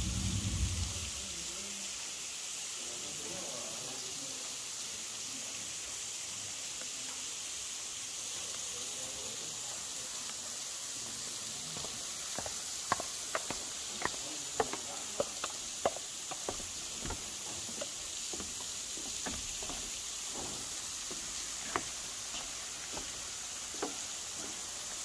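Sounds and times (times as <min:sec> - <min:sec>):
low rumble: 0:00.0 - 0:01.4
thin waterfall hissing: 0:00.0 - 0:25.0.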